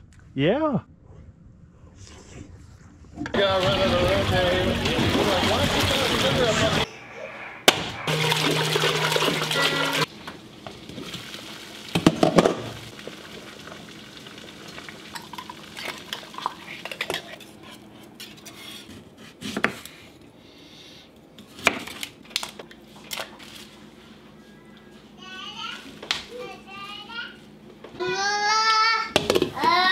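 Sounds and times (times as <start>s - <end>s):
small splashes: 3.4s - 6.8s
water pouring into a pot: 8.1s - 10.1s, 10.8s - 16.8s.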